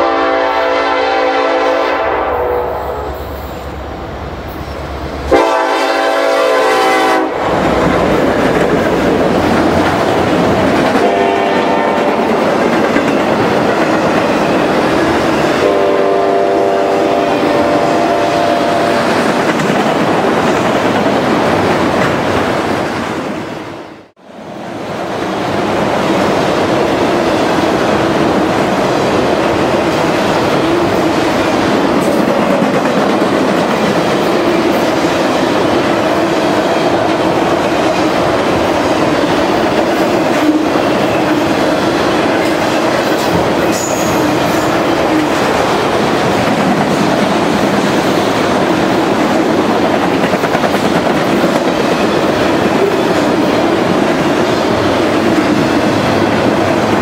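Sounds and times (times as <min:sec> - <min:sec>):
train horn blasts: 0:00.0 - 0:03.4, 0:05.3 - 0:07.6, 0:11.0 - 0:12.3, 0:15.6 - 0:19.0
train cars rumbling and clacking: 0:02.8 - 0:23.6, 0:24.6 - 0:57.0.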